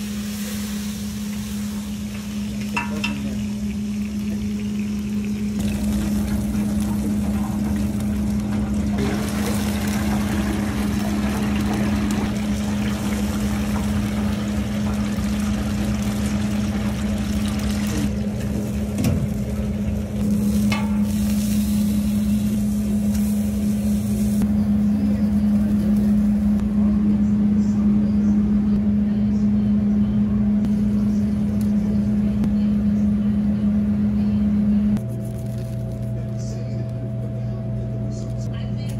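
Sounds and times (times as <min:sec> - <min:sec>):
oil sizzling in a deep fryer: 0:00.0 - 0:26.6
steady low hum: 0:00.0 - 0:38.9.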